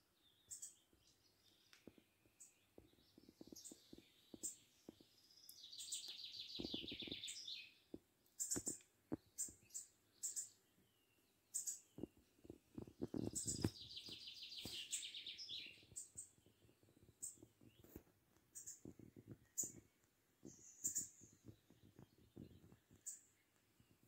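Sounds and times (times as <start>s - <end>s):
songbird chirping: 0.0s - 24.0s
bird trill: 5.5s - 7.8s, 9.4s - 10.6s, 11.5s - 12.0s, 20.5s - 21.4s.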